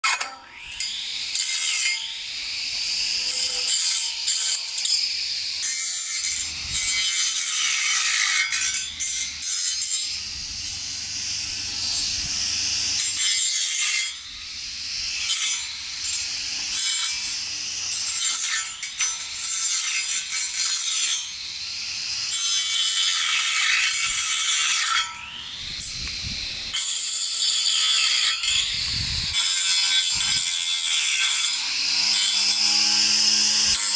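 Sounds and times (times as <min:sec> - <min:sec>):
grass trimmer motor whining: 0:02.0 - 0:05.6, 0:08.5 - 0:13.2, 0:14.0 - 0:19.5, 0:25.2 - 0:26.9, 0:28.4 - 0:33.9.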